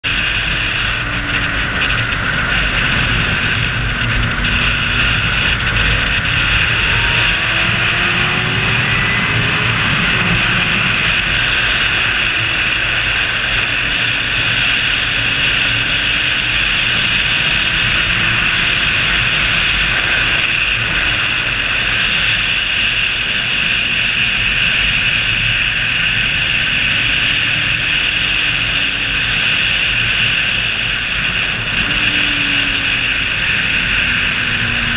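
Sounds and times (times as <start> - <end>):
wind rushing: 0.0 - 20.9
motorcycle engine: 0.0 - 34.9.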